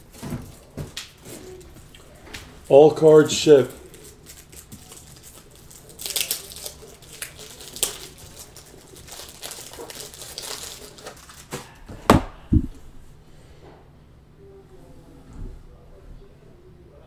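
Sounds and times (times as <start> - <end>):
plastic wrappers crinkling: 0.0 - 11.8
thumps on a table: 12.0 - 12.8.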